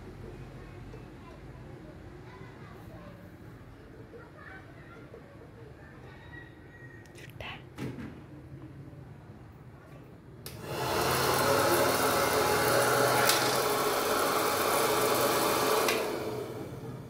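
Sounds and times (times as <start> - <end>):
popcorn maker fan humming: 10.4 - 17.0.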